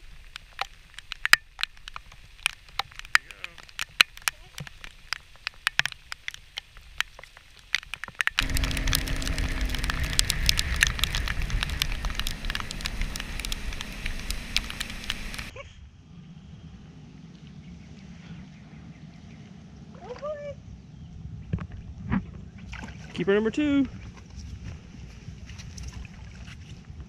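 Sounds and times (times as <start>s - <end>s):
raindrops ticking on boat: 0.0s - 15.5s
wind on camera: 7.8s - 27.0s
boat engine rushing at speed: 8.4s - 15.6s.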